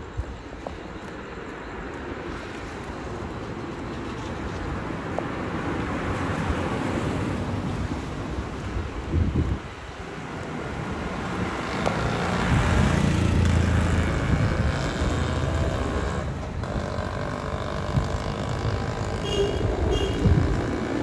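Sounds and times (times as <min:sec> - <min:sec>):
vehicle on wet street: 0:00.0 - 0:21.0.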